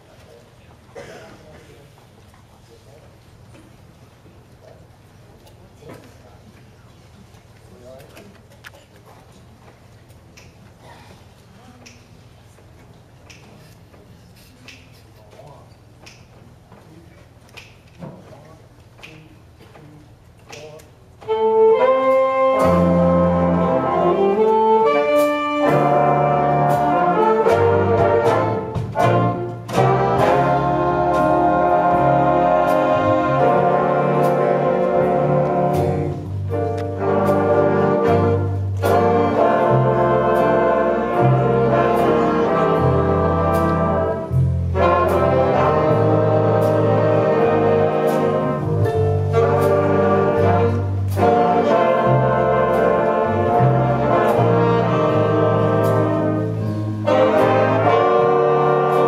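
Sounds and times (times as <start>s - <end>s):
jazz big band ballad: 21.2s - 59.0s
walking bass line: 21.3s - 59.0s.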